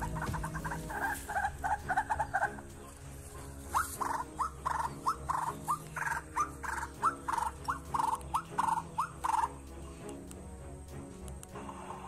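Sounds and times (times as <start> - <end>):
waterhen calling: 0.0 - 2.7, 3.6 - 9.6.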